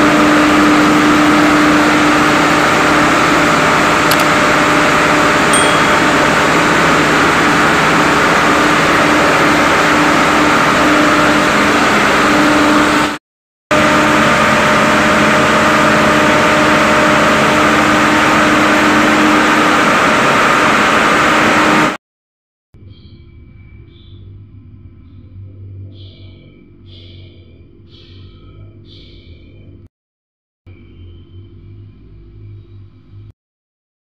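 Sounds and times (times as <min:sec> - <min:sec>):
diesel pump engine running: 0:00.0 - 0:22.0.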